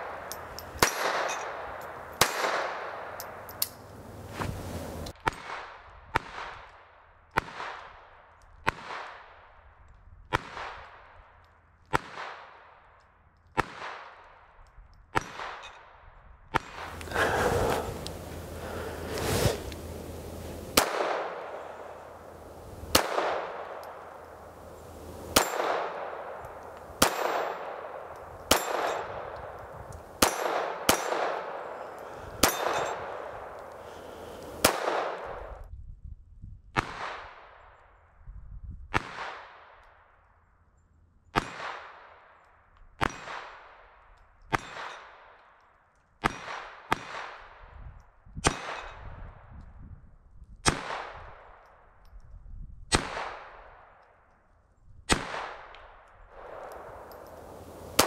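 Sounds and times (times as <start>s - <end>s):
pistol shots: 0.0s - 3.4s, 20.8s - 24.5s, 25.3s - 29.6s, 30.2s - 33.6s, 34.2s - 35.4s, 48.4s - 49.0s, 55.1s - 58.0s.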